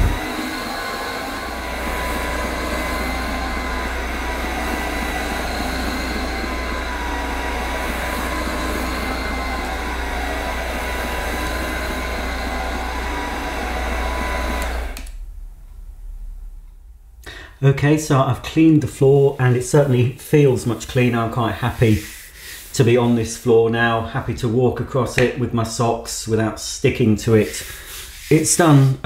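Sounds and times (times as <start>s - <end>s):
floor cleaner motor whine: 0.0s - 15.3s.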